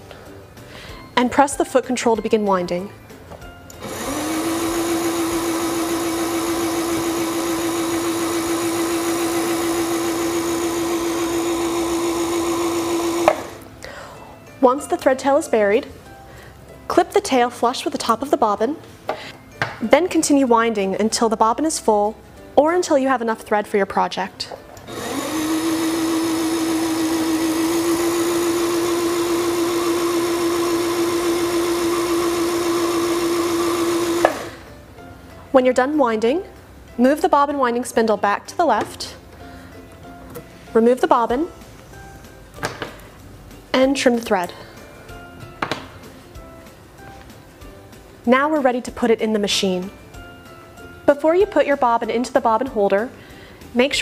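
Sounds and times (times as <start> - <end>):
sewing machine motor winding bobbin: 3.8 - 13.6, 24.9 - 34.6.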